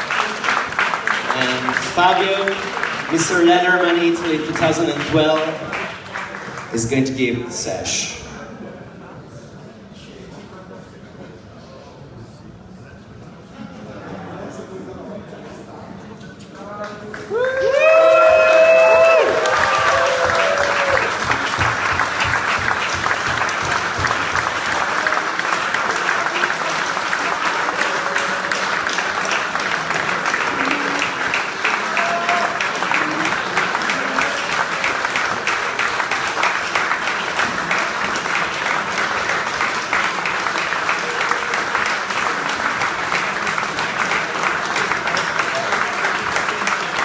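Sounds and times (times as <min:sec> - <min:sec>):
audience applauding: 0:00.0 - 0:07.2, 0:16.8 - 0:47.0.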